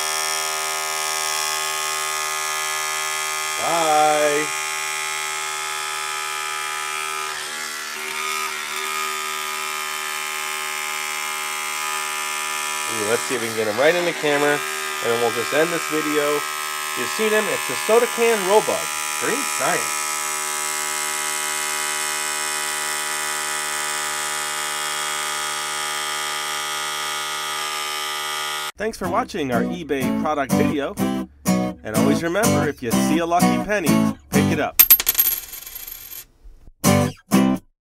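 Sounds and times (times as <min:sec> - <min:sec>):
small motor buzzing: 0:00.0 - 0:28.7.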